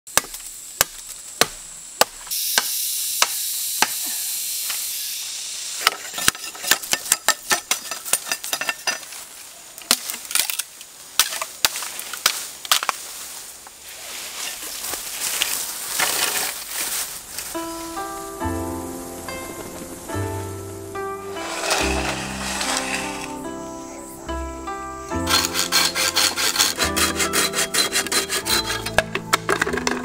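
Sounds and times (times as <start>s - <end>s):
leaves rustling: 7.7s - 29.4s.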